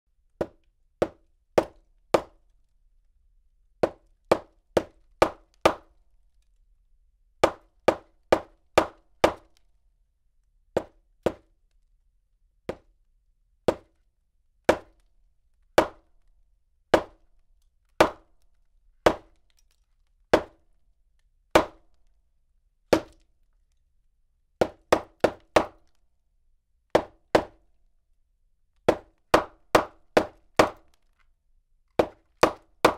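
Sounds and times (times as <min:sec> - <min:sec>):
hammer striking wood: 0:00.4 - 0:02.4, 0:03.8 - 0:06.0, 0:07.4 - 0:09.5, 0:10.8 - 0:11.4, 0:13.7 - 0:13.9, 0:14.7 - 0:15.0, 0:15.8 - 0:16.1, 0:16.9 - 0:17.2, 0:18.0 - 0:18.3, 0:19.0 - 0:19.4, 0:20.3 - 0:20.6, 0:21.6 - 0:21.8, 0:24.6 - 0:25.8, 0:26.9 - 0:27.6, 0:28.9 - 0:30.9, 0:32.0 - 0:32.9.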